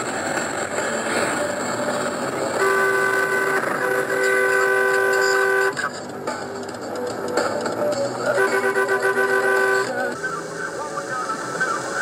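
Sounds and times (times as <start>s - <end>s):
wind and road rush: 0.0s - 12.0s
vehicle horn blast: 2.5s - 5.9s, 8.3s - 10.1s.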